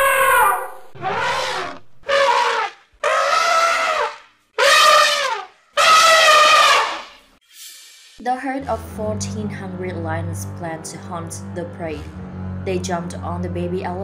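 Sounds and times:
elephants trumpeting: 0.0s - 7.2s.

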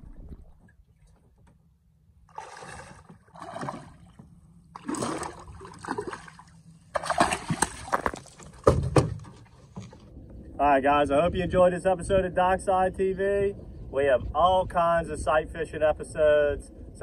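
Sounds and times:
fish splashing at water surface: 4.8s - 8.6s.

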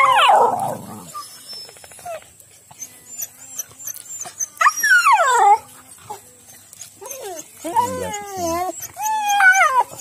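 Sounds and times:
dog howling: 0.0s - 1.2s, 3.1s - 10.0s.

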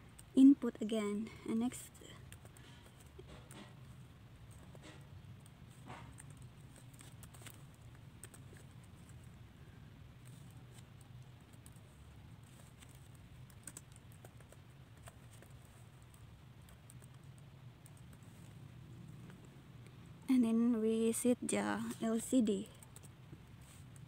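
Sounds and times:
low steady hum: 0.0s - 24.0s
typing on computer keyboard: 12.8s - 18.2s.

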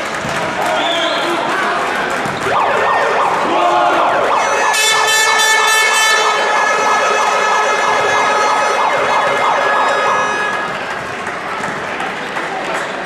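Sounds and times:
noisy crowd of voices: 0.0s - 13.0s
loud steady horn blast: 2.6s - 10.9s.

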